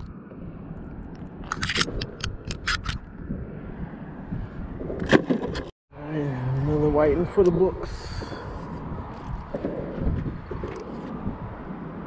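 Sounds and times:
sharp clicks and scrapes: 0:01.1 - 0:03.1.

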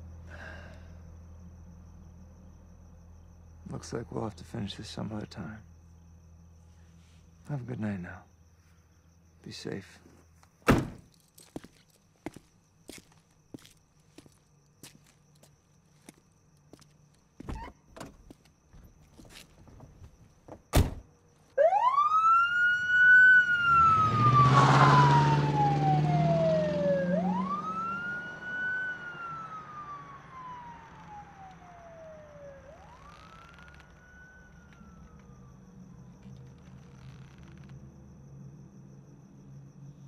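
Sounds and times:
police siren wailing: 0:21.6 - 0:35.7.

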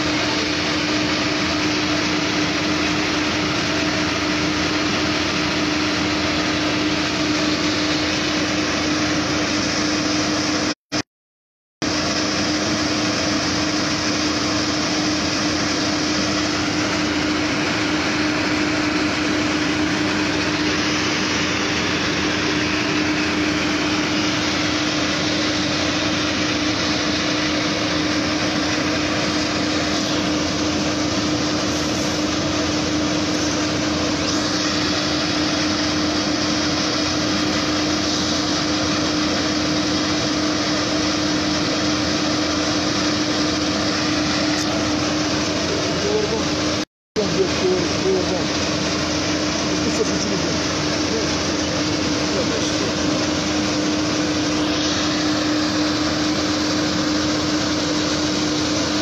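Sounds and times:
fire engines droning hum: 0:00.0 - 0:10.8, 0:11.8 - 0:59.0.

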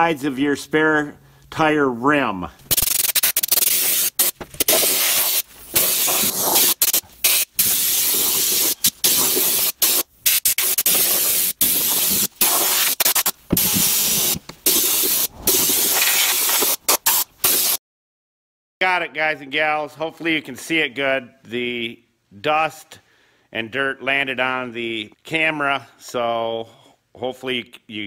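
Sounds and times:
spray gun hissing blasts: 0:02.7 - 0:17.8.

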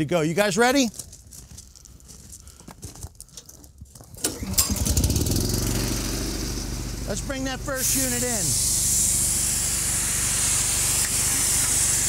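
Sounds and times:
compressor engine running: 0:04.2 - 0:12.0.

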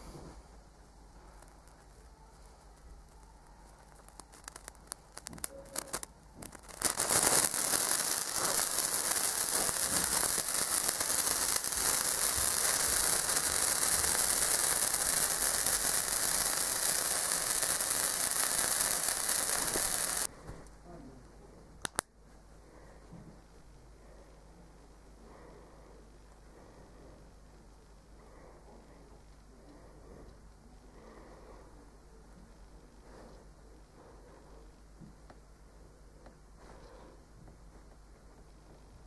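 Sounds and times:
sparkler fizzing crackle: 0:01.2 - 0:20.3.

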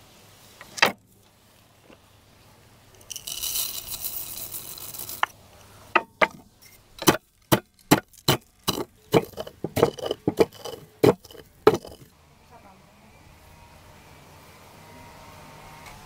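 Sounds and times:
spices poured into wooden bowl: 0:02.9 - 0:05.4, 0:06.7 - 0:12.1
pestle pounding in wooden mortar: 0:07.0 - 0:12.1.

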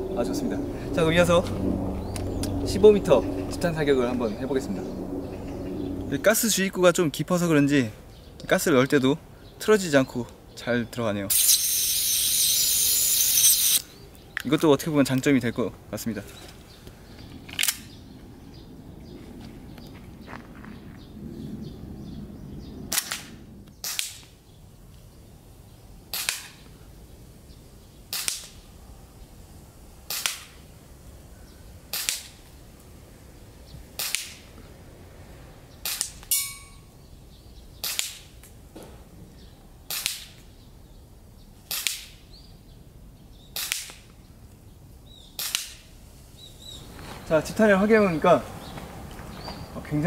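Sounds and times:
pistol slide cycling: 0:11.3 - 0:13.8.

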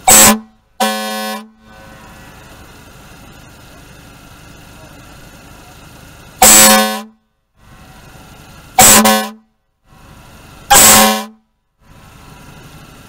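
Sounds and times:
car air horn blasts: 0:00.0 - 0:02.7, 0:06.4 - 0:07.2, 0:08.8 - 0:09.6, 0:10.7 - 0:11.5.

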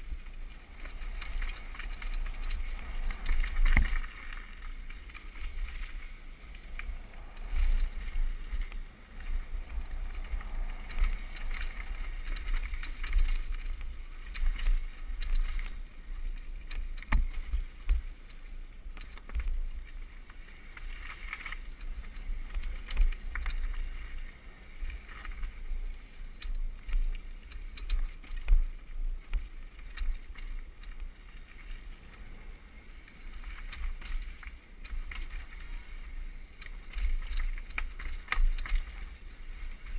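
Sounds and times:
wind buffeting microphone: 0:00.0 - 0:18.1
bike rattling and knocking: 0:00.0 - 0:24.2, 0:36.4 - 0:39.9.

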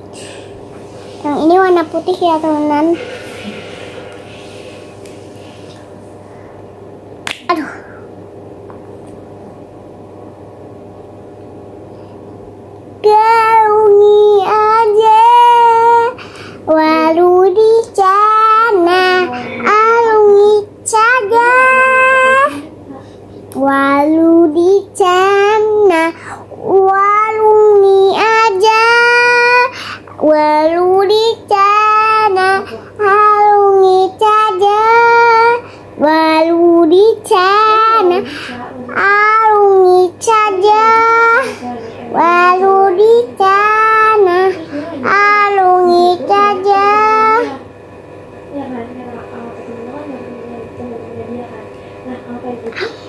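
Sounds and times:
low steady hum: 0:00.0 - 0:53.0
girl breathing: 0:02.9 - 0:05.8, 0:16.1 - 0:16.7, 0:26.1 - 0:26.5, 0:29.7 - 0:30.1, 0:35.6 - 0:35.9, 0:38.2 - 0:38.7
girl singing: 0:13.0 - 0:22.7, 0:23.5 - 0:38.3, 0:38.9 - 0:47.6.

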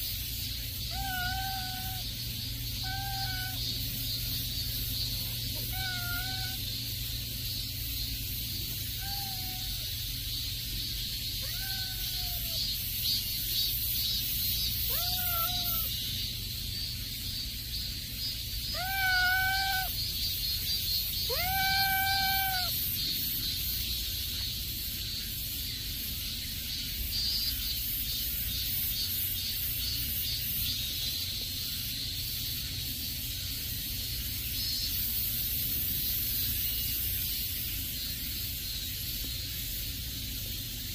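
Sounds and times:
cat meowing: 0:00.9 - 0:02.1, 0:02.8 - 0:03.6, 0:05.6 - 0:06.6, 0:09.0 - 0:09.8, 0:11.4 - 0:12.6, 0:14.8 - 0:15.9, 0:18.7 - 0:20.0, 0:21.2 - 0:22.8.

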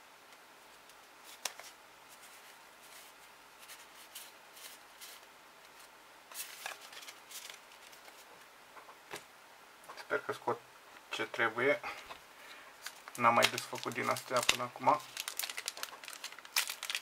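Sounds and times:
cards flicking and rustling: 0:12.8 - 0:17.0.

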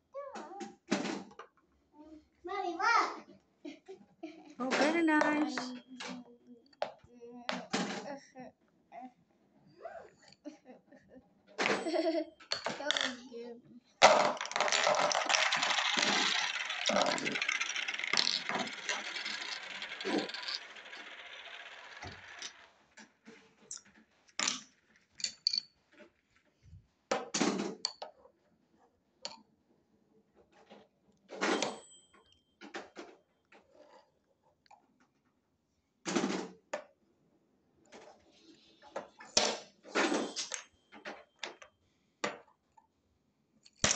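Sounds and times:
wooden toy pieces clattering: 0:04.6 - 0:06.2, 0:11.6 - 0:13.2, 0:14.0 - 0:23.1, 0:23.7 - 0:25.7, 0:39.4 - 0:41.6, 0:43.7 - 0:43.9.

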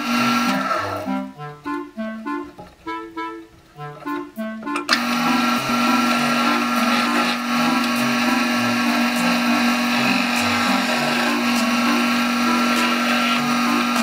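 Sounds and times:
chisel cutting spinning wood: 0:00.0 - 0:01.1, 0:04.9 - 0:14.0
wood lathe motor humming: 0:00.0 - 0:01.3, 0:04.9 - 0:14.0.

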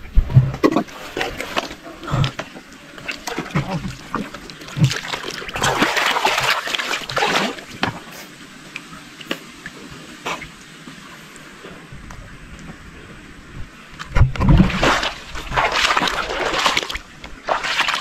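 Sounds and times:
water splashing from wading: 0:00.6 - 0:08.1, 0:14.0 - 0:18.0.

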